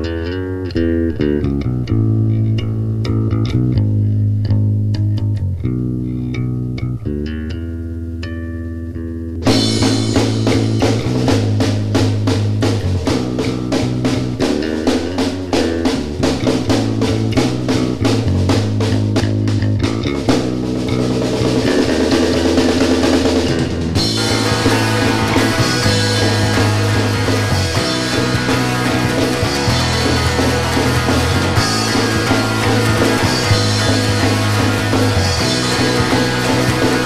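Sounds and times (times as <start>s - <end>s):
bass guitar: 0.0s - 37.0s
electric guitar: 0.0s - 37.0s
drum kit: 9.4s - 37.0s.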